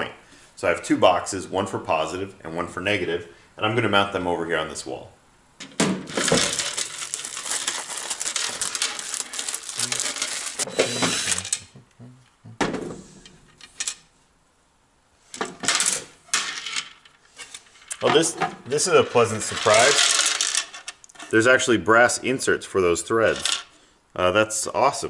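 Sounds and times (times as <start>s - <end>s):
plastic parts clattering: 5.6s - 11.6s, 15.4s - 21.3s.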